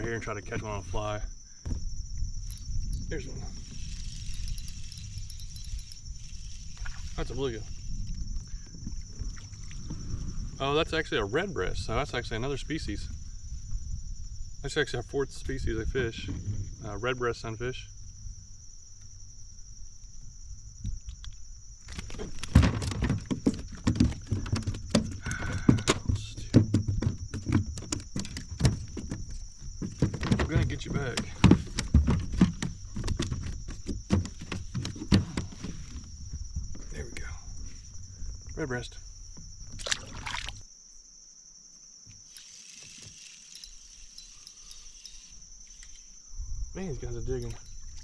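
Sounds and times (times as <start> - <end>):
high insect drone: 0.0 - 48.0
knocks and thumps on a kayak: 1.7 - 2.0, 21.9 - 36.9
water trickling and sloshing: 3.5 - 10.4, 39.4 - 40.7
fish splashing into water: 39.8 - 40.6.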